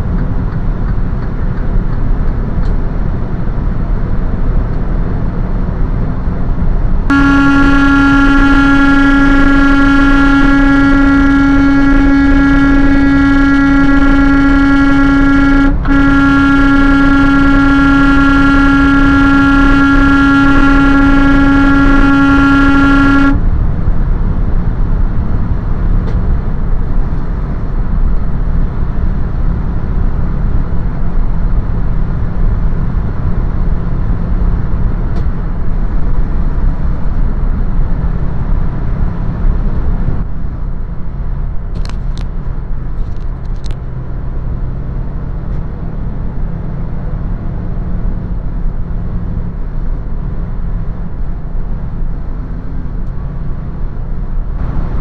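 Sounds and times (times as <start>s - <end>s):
road and engine noise: 0.0s - 55.0s
truck horn blast: 7.1s - 24.6s, 53.0s - 55.0s.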